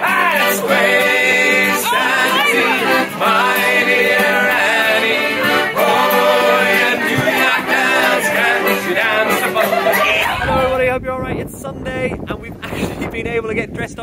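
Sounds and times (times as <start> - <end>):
person singing long notes: 0.0 - 10.6.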